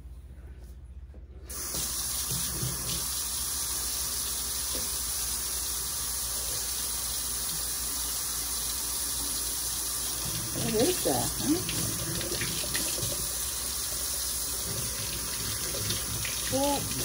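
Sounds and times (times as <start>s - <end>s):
water running into steel sink: 1.5s - 17.0s.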